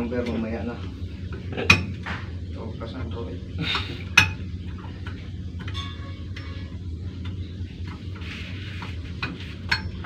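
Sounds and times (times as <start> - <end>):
steady low hum: 0.0 - 10.0
metallic ring: 5.6 - 6.9.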